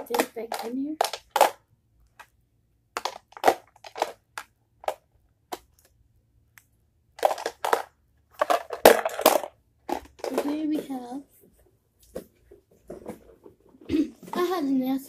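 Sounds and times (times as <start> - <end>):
plastic case rattling: 3.0 - 4.2, 7.2 - 11.1.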